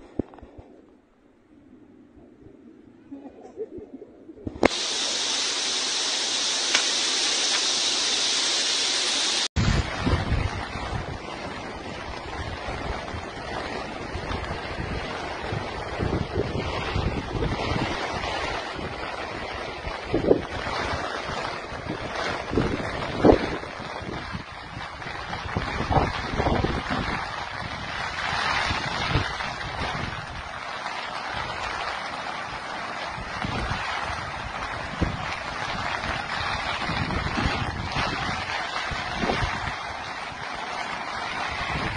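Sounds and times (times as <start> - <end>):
river rushing: 4.6 - 9.5
wind buffeting microphone: 9.6 - 31.9, 32.5 - 41.9.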